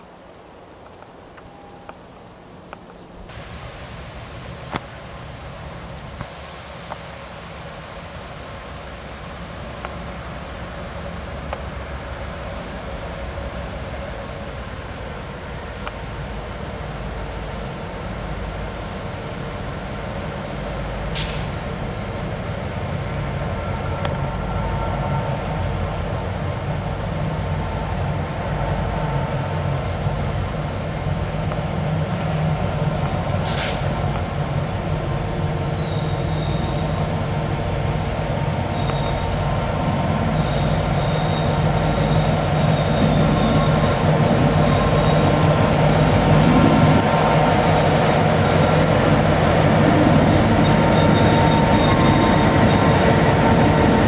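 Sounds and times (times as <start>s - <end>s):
locomotive engine rumble: 0.0s - 54.0s
high wavering squeal: 24.4s - 37.5s, 38.7s - 54.0s.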